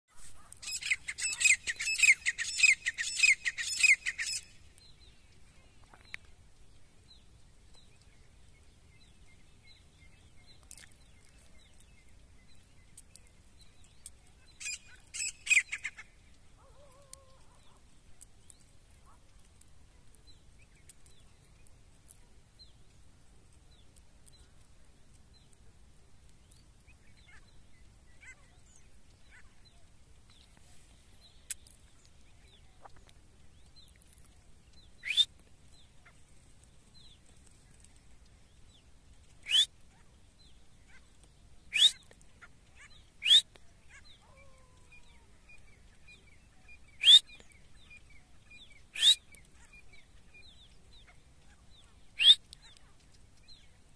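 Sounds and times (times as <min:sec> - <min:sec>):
faint small bird chirps: 0:00.1 - 0:53.9
bird loud short calls: 0:48.9 - 0:49.2.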